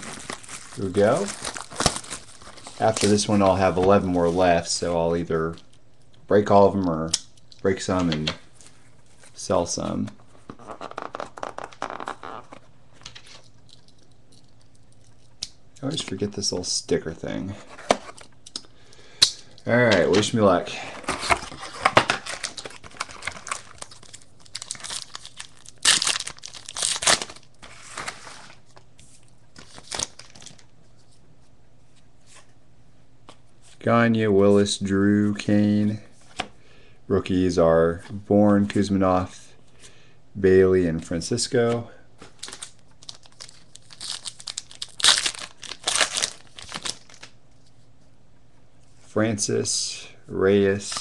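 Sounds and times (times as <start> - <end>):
wrapper crinkling and tearing: 0.0 - 3.8, 21.0 - 28.8, 29.6 - 30.7, 42.3 - 47.4.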